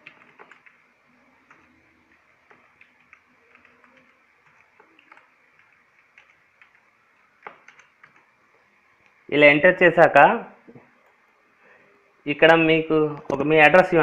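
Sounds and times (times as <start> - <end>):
keyboard keys clicking: 0.0 - 0.8, 2.4 - 6.8, 7.4 - 8.3.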